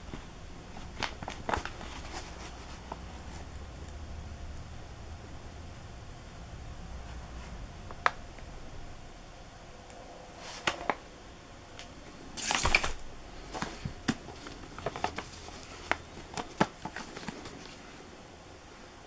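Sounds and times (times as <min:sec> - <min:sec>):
papery rustle: 0:00.0 - 0:03.5, 0:12.4 - 0:18.0
cardboard tubes tapping and clicking: 0:13.6 - 0:17.5.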